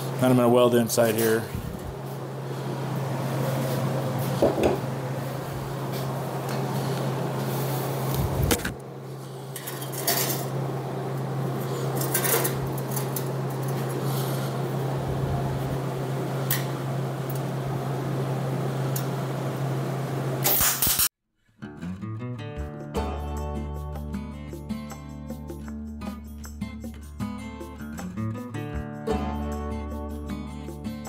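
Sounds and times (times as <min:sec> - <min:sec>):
steady low hum: 0:00.0 - 0:20.5.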